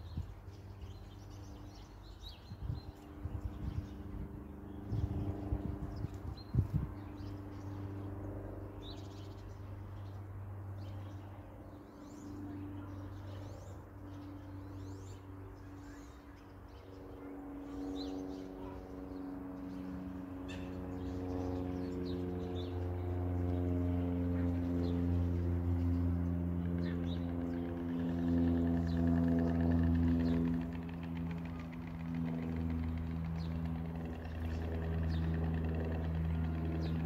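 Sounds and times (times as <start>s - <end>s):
small birds chirping: 0.0s - 37.0s.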